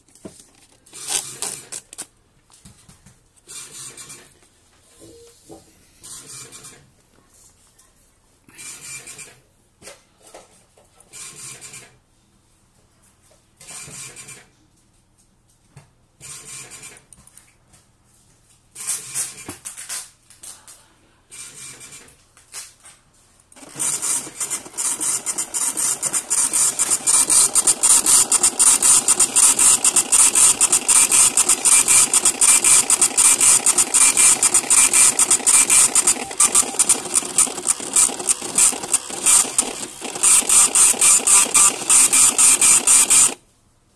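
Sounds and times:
dot-matrix printer buzzing: 23.6s - 43.4s.

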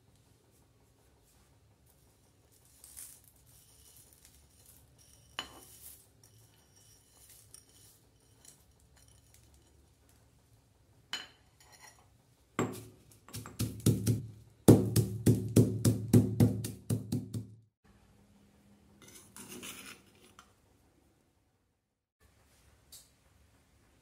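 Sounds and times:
metal spoon scraping mortar: 2.4s - 9.8s, 19.0s - 20.5s
pestle pounding in stone mortar: 12.6s - 17.6s.

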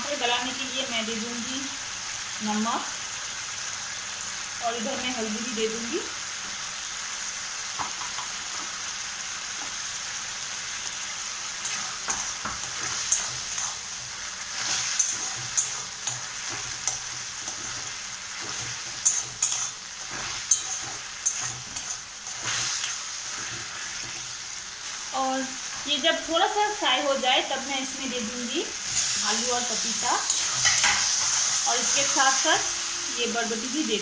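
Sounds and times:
food sizzling in a pan: 0.0s - 34.0s
metal spatula scraping a pan: 11.6s - 25.0s, 30.1s - 32.9s.

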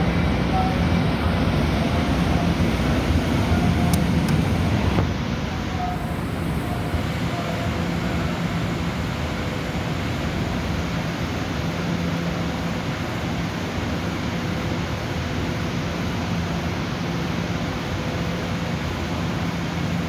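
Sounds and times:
train running: 0.0s - 20.0s.

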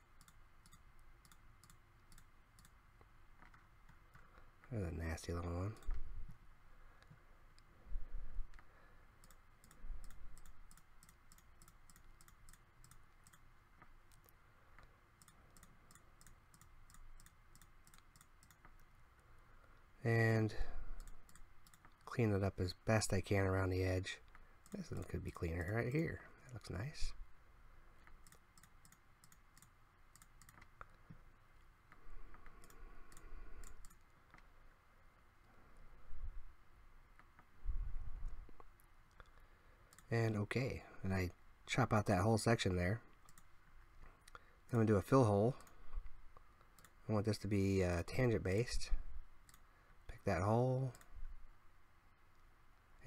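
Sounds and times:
computer mouse clicking: 0.0s - 4.4s, 8.5s - 19.0s, 21.0s - 22.1s, 28.0s - 31.2s, 31.9s - 34.5s, 38.6s - 40.1s, 43.1s - 43.5s, 46.5s - 47.0s, 49.4s - 49.7s.

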